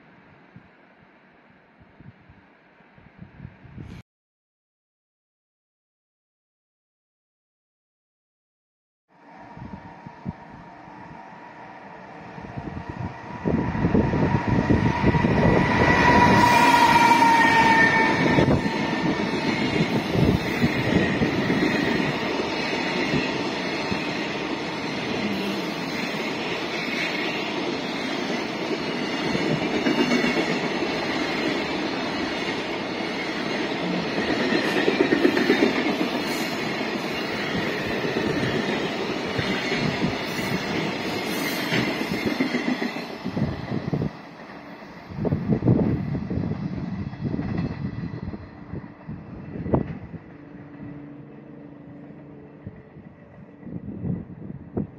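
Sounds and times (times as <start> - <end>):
high whine: 9.2 - 21.6
train wheels rumbling on rails: 11.9 - 54.9.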